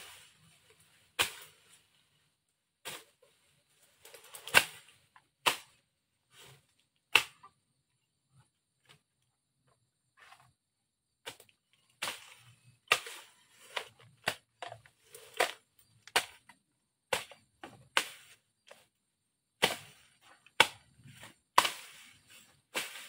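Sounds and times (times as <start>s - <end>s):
rustle of cut vegetation: 0.0s - 7.4s, 11.2s - 16.5s, 19.6s - 23.0s
machete chopping brush: 1.2s - 1.8s, 2.8s - 3.2s, 4.3s - 5.8s, 7.1s - 7.5s, 11.2s - 18.9s, 19.6s - 23.0s.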